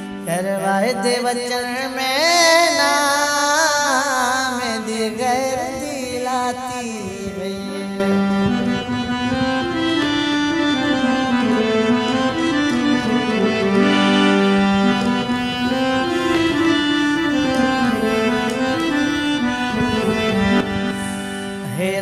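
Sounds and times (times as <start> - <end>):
reedy instrument melody: 6.8 - 22.0.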